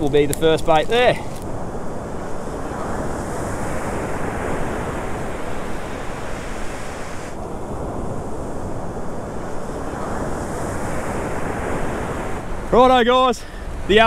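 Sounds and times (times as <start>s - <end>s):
ocean surf breaking: 0.0s - 14.0s
wind buffeting microphone: 0.0s - 14.0s.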